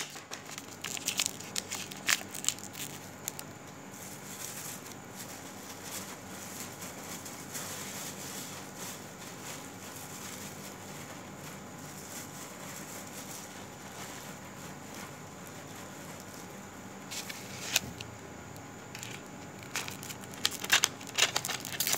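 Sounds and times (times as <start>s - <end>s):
light crackles: 17.1s - 21.9s.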